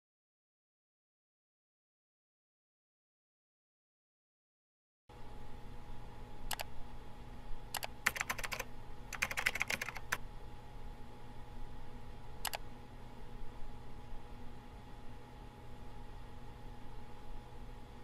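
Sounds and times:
keyboard keys clicking: 0:07.8 - 0:10.2.

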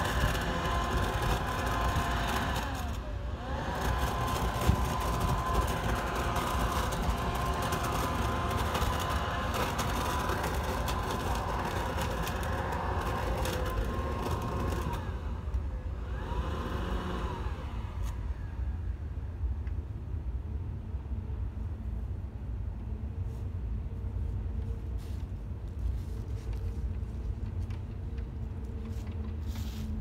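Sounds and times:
leaves rattling through vacuum: 0:00.0 - 0:18.5
leaf vacuum whining: 0:00.0 - 0:19.5.

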